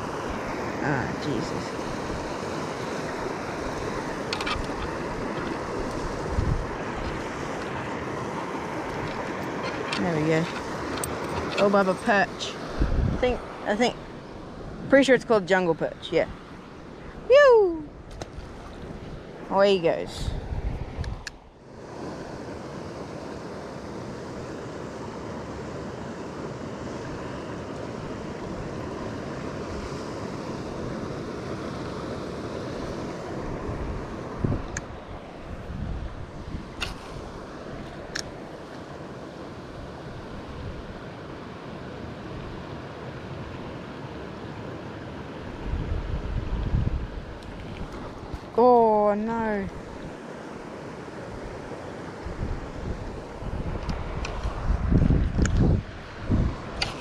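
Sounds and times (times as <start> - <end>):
wind on microphone: 0.0 - 22.7, 28.0 - 38.6, 45.4 - 50.3, 51.2 - 57.0.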